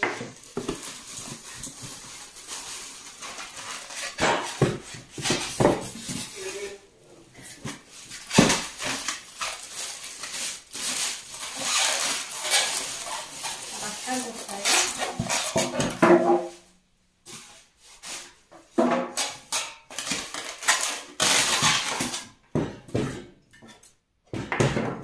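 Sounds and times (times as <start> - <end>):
plastic wrap crinkling: 0.0 - 16.0, 19.8 - 22.4
cardboard rustling and scraping: 0.0 - 16.7.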